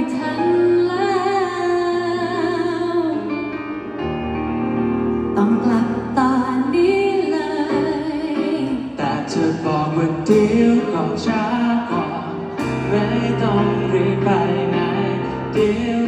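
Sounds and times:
woman singing into microphone: 0:00.0 - 0:03.6, 0:05.4 - 0:09.5
instrumental accompaniment: 0:00.0 - 0:16.0.

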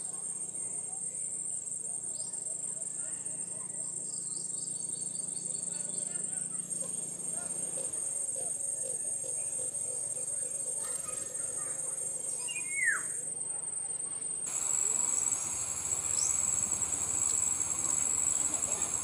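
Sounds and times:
high-pitched insect chorus: 0:05.5 - 0:19.0.

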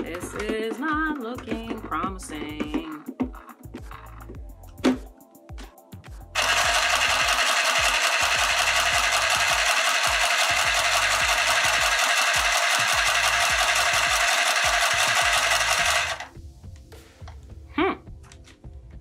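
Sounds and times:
sewing machine clatter: 0:06.4 - 0:16.3.

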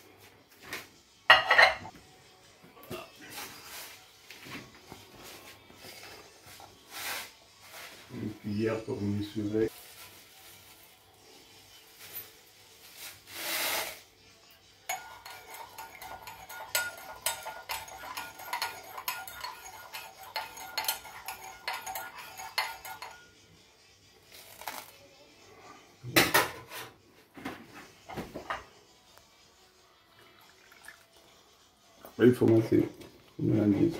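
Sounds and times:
metal spoon clinking in ceramic bowl: 0:01.3 - 0:01.9, 0:14.9 - 0:23.4.

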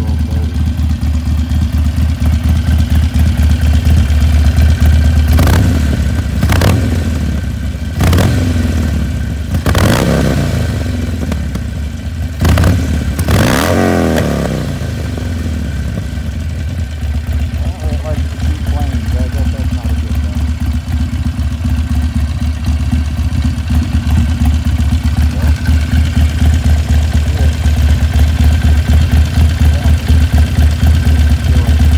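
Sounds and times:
motorcycle engine idling: 0:00.0 - 0:31.9.

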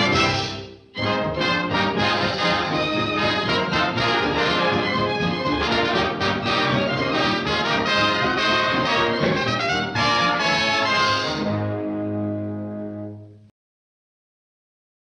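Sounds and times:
orchestral cartoon music with brass: 0:00.0 - 0:13.5.

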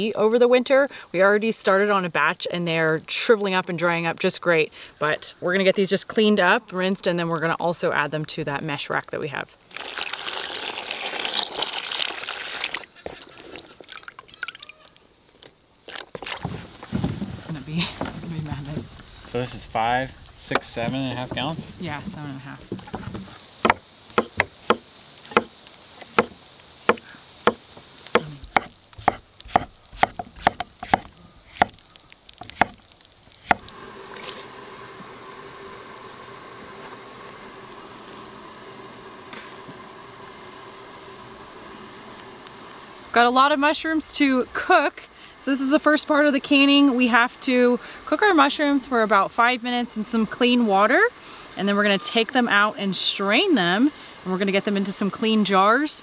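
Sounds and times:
camp stove hissing: 0:09.6 - 0:14.3, 0:16.4 - 0:56.0
water dripping: 0:09.6 - 0:16.5
hand stirring wet rose hips: 0:09.6 - 0:16.8
water pouring into plastic tub: 0:09.7 - 0:14.9
knife chopping on wooden board: 0:23.0 - 0:25.5, 0:26.2 - 0:27.6, 0:28.2 - 0:31.8, 0:32.4 - 0:32.8.

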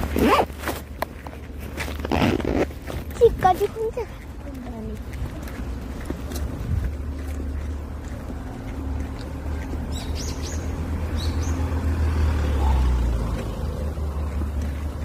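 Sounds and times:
steady low rumble: 0:02.7 - 0:11.4
high bird chirps: 0:09.9 - 0:11.7.

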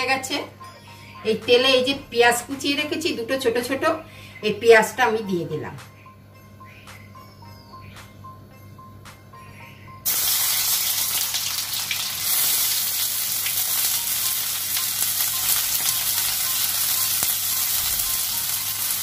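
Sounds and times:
onions sizzling in oil: 0:10.0 - 0:19.0.

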